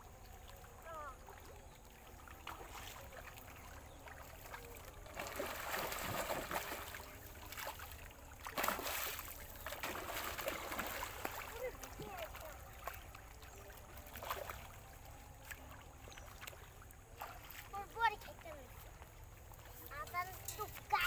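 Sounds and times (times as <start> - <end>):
fish thrashing and splashing: 2.0 - 18.0.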